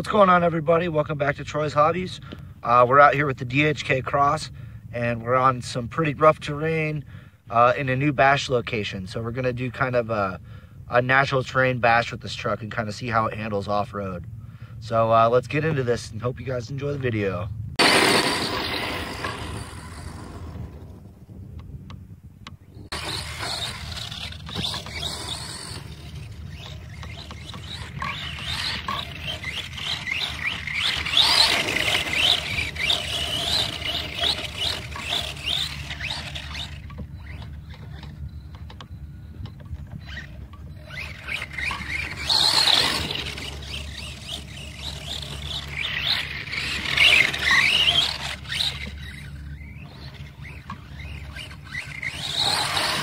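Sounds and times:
tyres scrabbling in gravel: 17.8 - 21.0, 22.9 - 38.7, 39.6 - 53.0
electric motor whining: 17.8 - 21.1, 22.8 - 53.0.

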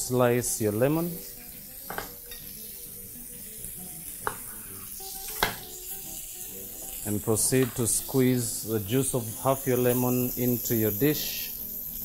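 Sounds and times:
ribs sizzling on a griddle: 0.0 - 12.0
knife knocking on cutting board: 5.4 - 5.6.

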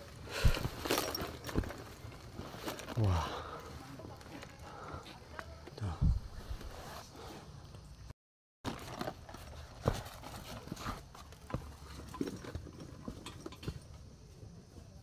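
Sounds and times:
boot footsteps on rock: 0.4 - 1.8.

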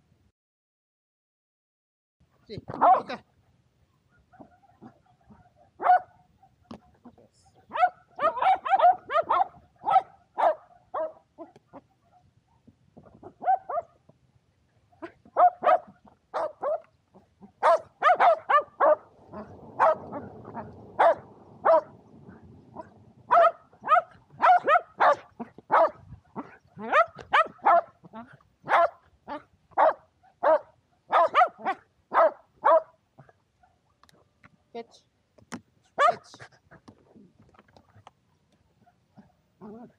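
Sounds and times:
dogs barking excitedly: 2.7 - 3.2, 4.0 - 6.6, 7.6 - 14.0, 14.9 - 28.0, 28.6 - 33.8, 35.9 - 36.8
rough rustling noise: 17.4 - 27.7.

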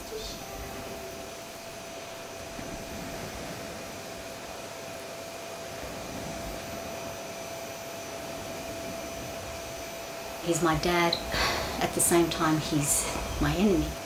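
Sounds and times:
vacuum cleaner running: 0.0 - 14.0.

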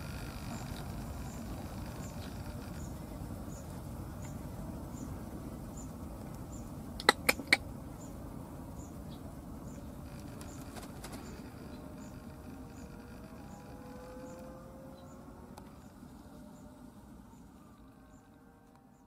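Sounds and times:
low outdoor background: 0.0 - 19.0
sharp clicks: 7.0 - 7.6.

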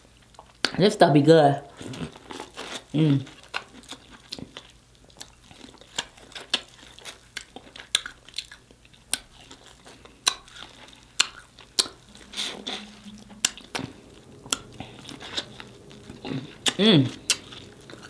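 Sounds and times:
wet chewing and lip smacking: 1.8 - 12.6.

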